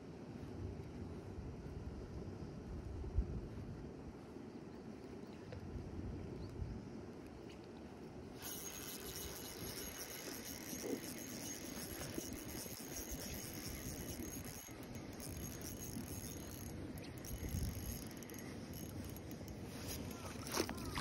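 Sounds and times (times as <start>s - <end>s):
outdoor background noise: 0.0s - 21.0s
fishing reel cranking rattle: 8.4s - 21.0s.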